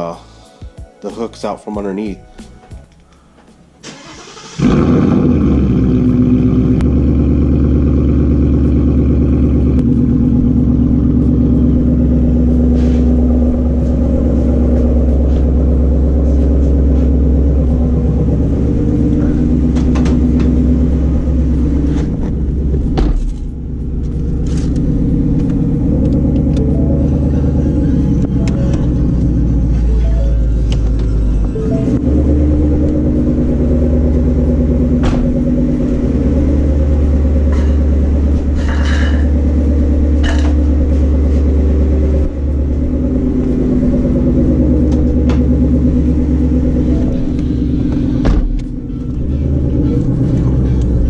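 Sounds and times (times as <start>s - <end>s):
car engine starting and idling: 2.8s - 51.0s
single thump: 22.8s - 23.4s, 35.0s - 35.4s, 48.2s - 48.7s.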